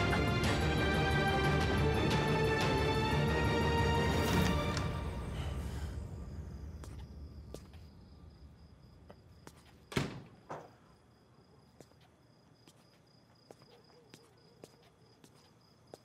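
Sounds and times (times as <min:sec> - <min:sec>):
crickets chirping: 0:00.0 - 0:16.0
faint footsteps: 0:06.7 - 0:09.9, 0:11.6 - 0:16.0.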